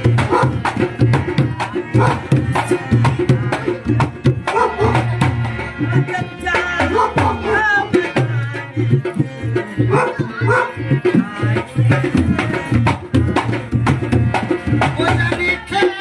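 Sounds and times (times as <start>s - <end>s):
hand drums playing: 0.0s - 16.0s
harmonium chords: 0.0s - 16.0s.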